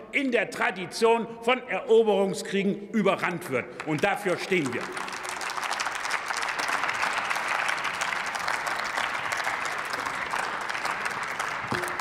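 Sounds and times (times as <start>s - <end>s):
crowd applauding: 3.8s - 12.0s.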